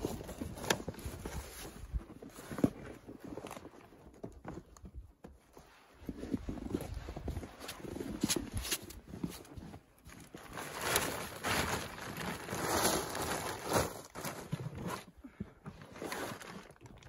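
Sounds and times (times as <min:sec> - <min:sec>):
canvas tent flap rustling: 0:06.6 - 0:15.2.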